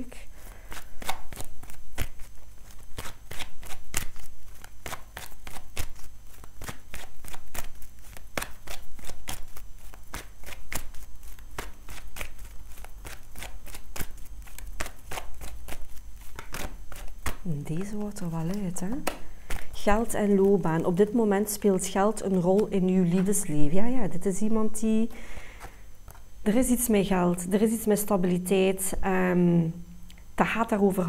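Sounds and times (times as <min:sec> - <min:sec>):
cards being shuffled: 0:00.4 - 0:20.8, 0:25.5 - 0:26.3.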